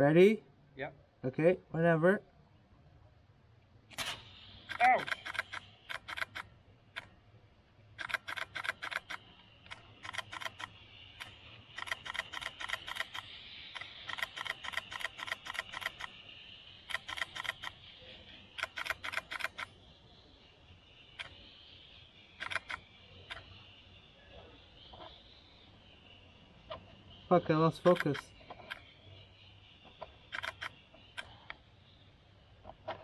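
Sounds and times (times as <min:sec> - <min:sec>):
camera shutter clicking: 0:04.7 - 0:06.5, 0:08.0 - 0:16.1, 0:16.9 - 0:17.8, 0:22.4 - 0:22.8, 0:30.3 - 0:31.3.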